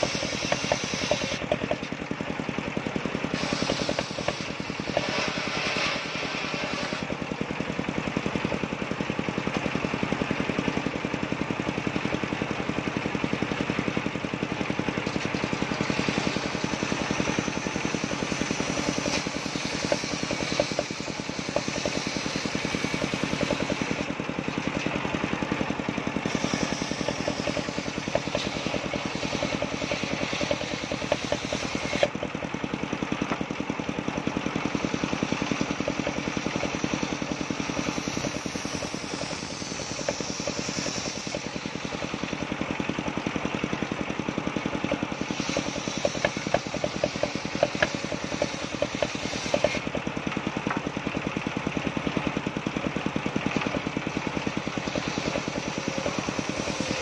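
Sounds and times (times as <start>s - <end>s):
circular saw ripping boards: 0.0s - 2.0s, 3.2s - 7.2s, 15.1s - 24.9s, 26.2s - 32.2s, 35.1s - 42.6s, 44.8s - 50.0s
engine running steadily: 0.0s - 57.0s.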